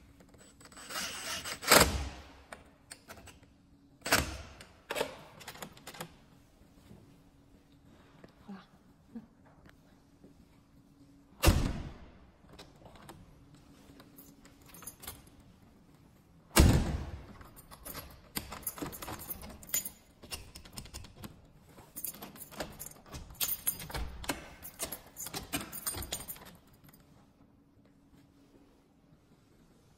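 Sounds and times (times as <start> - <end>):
keys jangling: 13.8 - 15.6, 17.2 - 27.2
lock clicks and rattles: 17.2 - 21.4, 22.0 - 27.1.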